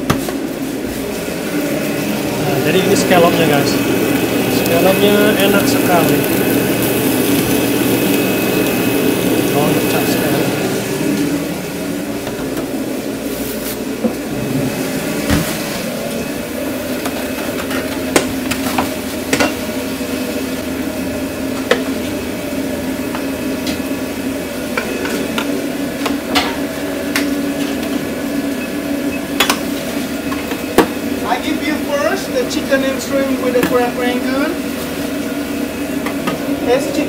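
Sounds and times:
steady mechanical hum: 0.0 - 37.0
seafood cooking in a pan: 4.0 - 10.2.

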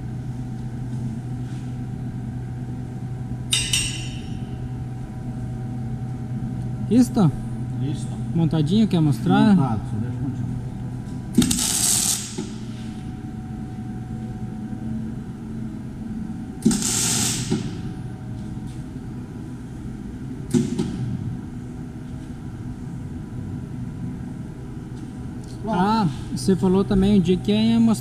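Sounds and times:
steady low hum: 0.0 - 28.0
welding arc crackling: 11.4 - 12.6, 16.6 - 17.9.

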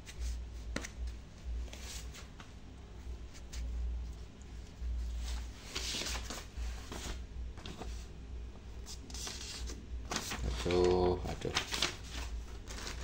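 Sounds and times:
paper and plastic bag rustling: 9.1 - 13.0.

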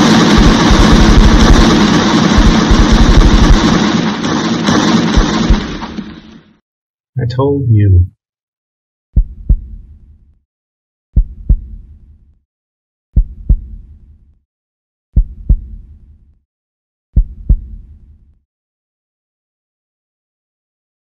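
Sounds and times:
heartbeat thumps: 9.2 - 9.8, 11.2 - 11.8, 13.2 - 13.8, 15.2 - 15.8, 17.2 - 17.8.

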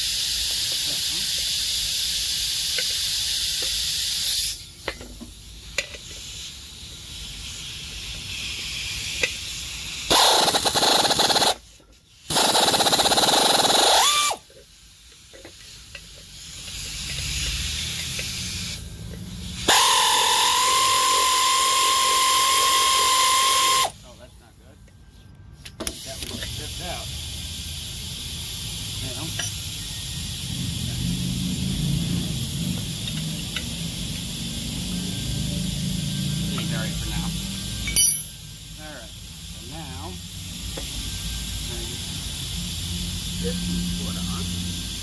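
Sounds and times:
air hiss: 0.0 - 45.0
pneumatic air ratchet running: 0.0 - 45.0.

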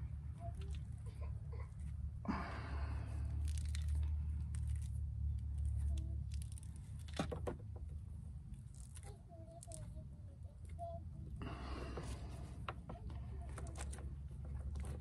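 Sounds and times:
steady low rumble: 0.0 - 7.2.

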